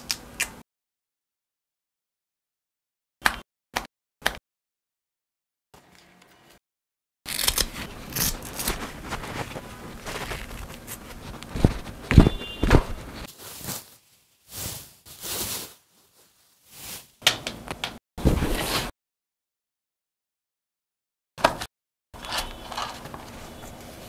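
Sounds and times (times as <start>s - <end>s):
rustling and scraping of strap: 7.3s - 17.1s.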